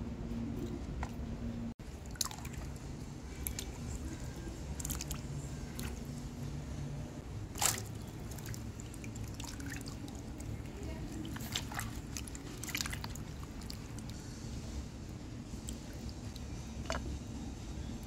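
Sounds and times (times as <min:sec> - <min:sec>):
water swishing and dripping: 0:01.8 - 0:06.3, 0:07.5 - 0:14.2, 0:15.5 - 0:17.2
beans splashing into water: 0:07.6 - 0:10.4.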